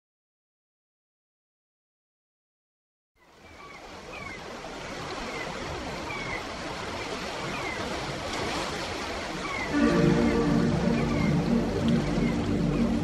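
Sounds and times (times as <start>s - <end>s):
steady rushing noise: 9.7s - 13.0s.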